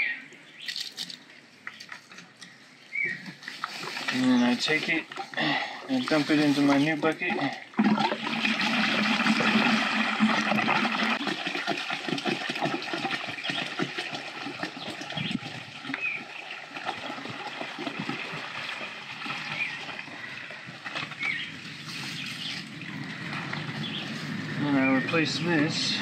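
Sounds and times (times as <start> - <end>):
liquid pouring through plastic hose: 3.4 - 23.6
liquid splattering into bucket: 7.4 - 15.0.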